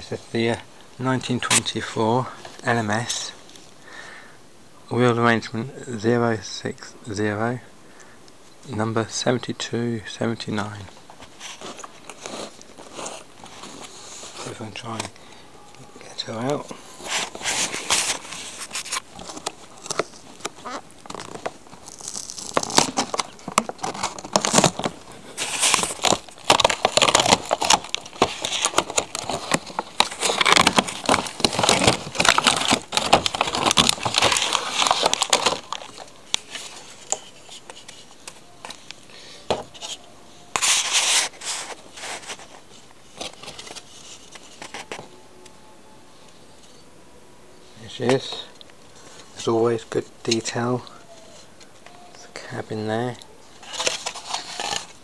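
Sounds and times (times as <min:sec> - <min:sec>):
plastic packaging crinkling: 0:10.7 - 0:45.5, 0:53.5 - 0:55.0.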